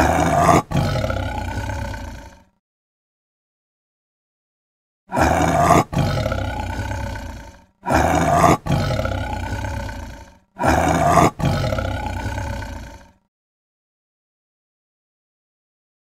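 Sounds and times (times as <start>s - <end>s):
big cat roaring: 0.0s - 2.6s, 5.1s - 13.3s.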